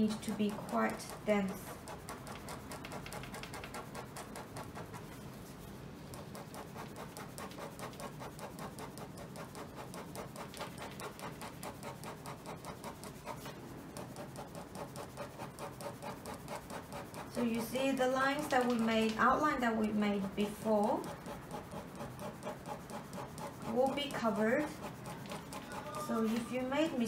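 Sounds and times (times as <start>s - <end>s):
pen scratching on paper: 0.0s - 27.0s.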